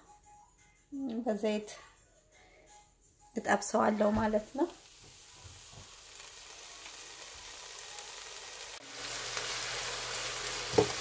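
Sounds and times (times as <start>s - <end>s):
onions sizzling in hot oil: 4.0s - 11.0s.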